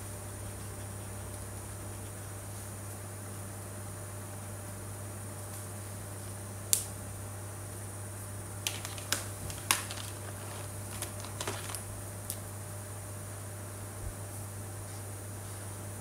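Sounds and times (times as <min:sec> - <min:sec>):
steady electrical hum: 0:00.0 - 0:16.0
plastic marker pens clicking: 0:08.7 - 0:11.8.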